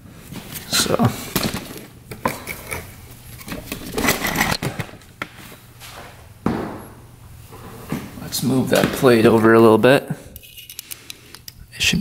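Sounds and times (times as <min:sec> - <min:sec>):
scraping and rustling: 0:01.6 - 0:06.1.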